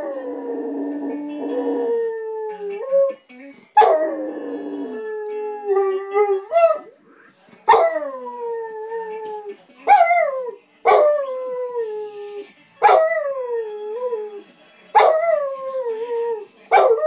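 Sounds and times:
dog howling: 0.0s - 3.2s, 3.8s - 6.9s.

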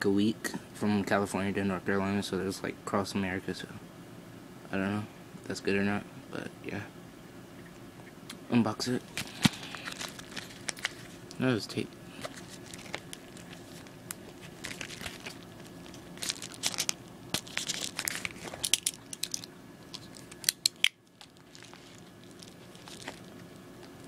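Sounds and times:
paper mailer crinkling and tearing: 9.1s - 11.2s, 12.1s - 20.6s, 21.2s - 24.0s.

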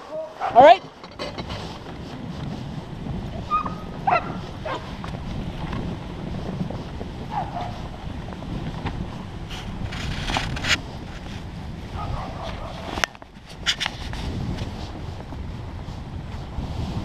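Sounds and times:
low rumble of moving sled: 0.0s - 17.0s
wind on microphone: 0.0s - 17.0s
dogs yipping and whining: 3.4s - 4.8s.

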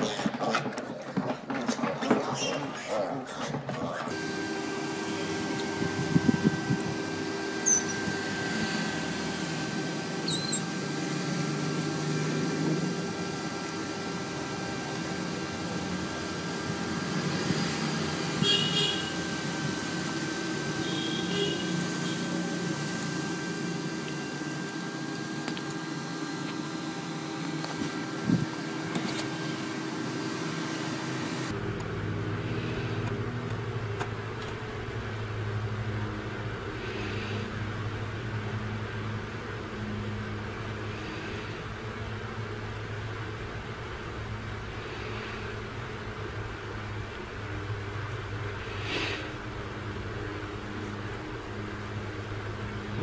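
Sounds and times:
steady hum: 3.0s - 53.0s
baby otter squeaking: 10.2s - 10.7s.

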